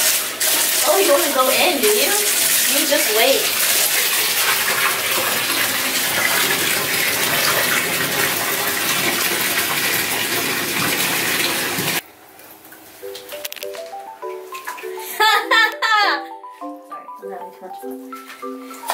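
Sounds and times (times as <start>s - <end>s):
tap water pouring into tub: 0.0s - 12.0s, 14.4s - 15.2s.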